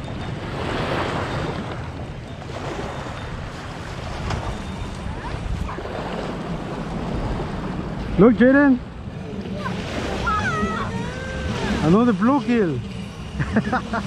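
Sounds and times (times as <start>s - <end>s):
wind across microphone: 0.0s - 8.1s.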